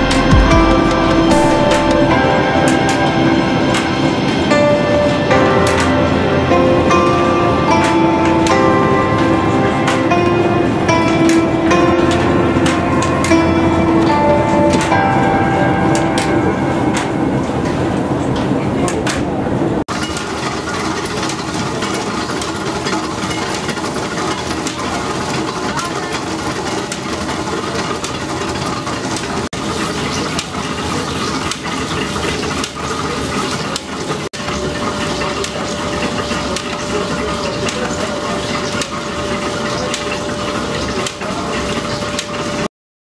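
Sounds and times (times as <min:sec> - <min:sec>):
steady hum: 0:00.0 - 0:19.8
mill machinery rattling: 0:00.0 - 0:42.7.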